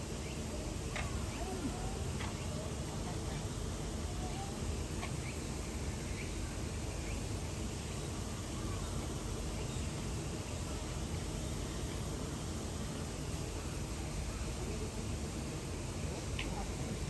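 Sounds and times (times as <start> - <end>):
low rumble and hiss: 0.0 - 17.0.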